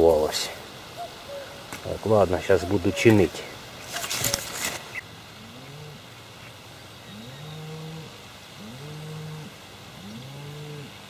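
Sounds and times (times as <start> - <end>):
animal mooing: 5.4 - 6.0, 7.1 - 11.0.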